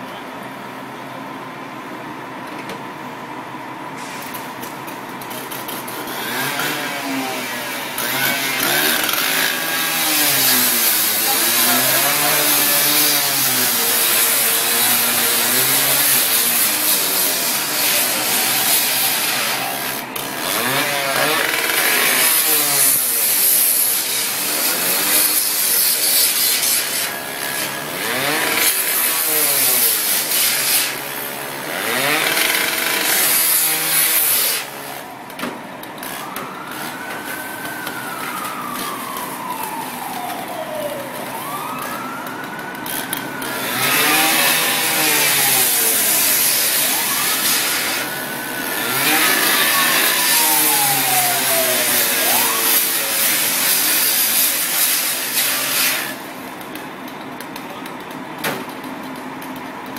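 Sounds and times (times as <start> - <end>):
siren wailing: 17.0 - 22.4, 35.9 - 54.4
fire hose spraying water: 43.5 - 56.3.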